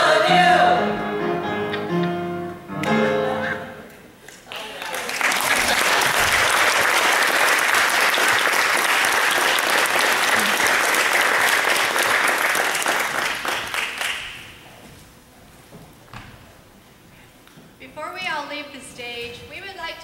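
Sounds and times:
audience applauding: 4.4s - 14.6s.

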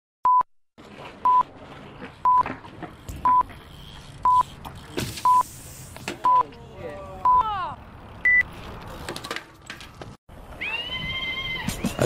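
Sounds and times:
short electronic beep: 5.2s - 5.4s.

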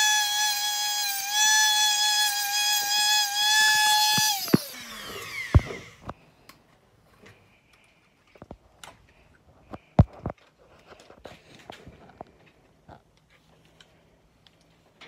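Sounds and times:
rotary tool whining: 0.0s - 6.2s.

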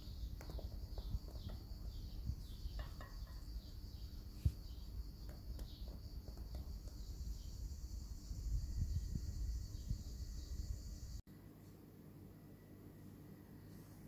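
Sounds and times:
high-pitched hiss: 0.0s - 11.2s.

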